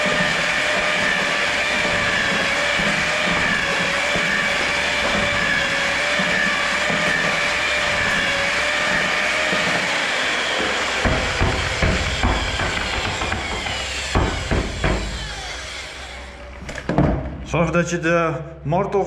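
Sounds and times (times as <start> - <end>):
electric paddle mixer whining: 0.0 - 16.6
dull knocks: 1.6 - 15.4.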